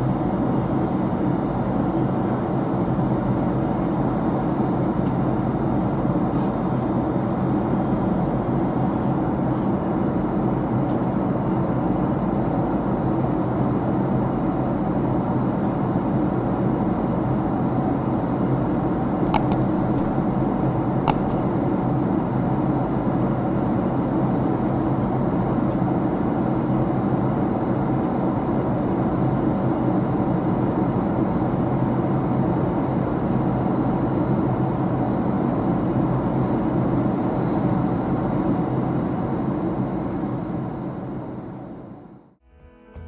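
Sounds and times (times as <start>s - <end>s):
airliner cabin noise: 19.2s - 22.3s
mouse-click sound effects: 19.3s - 21.6s.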